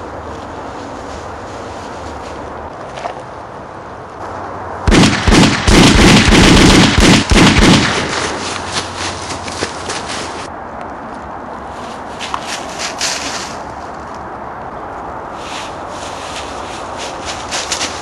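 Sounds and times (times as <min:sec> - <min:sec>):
rapid gunshots with echo: 0:04.9 - 0:08.5.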